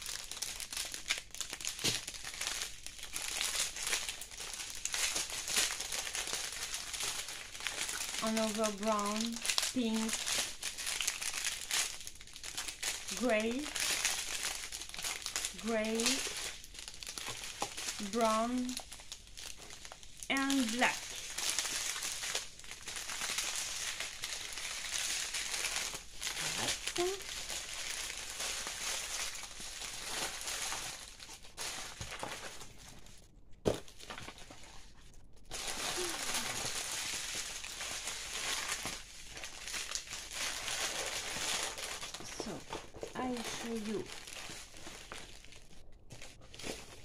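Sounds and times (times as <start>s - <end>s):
plastic packets crinkling: 0.0s - 47.0s.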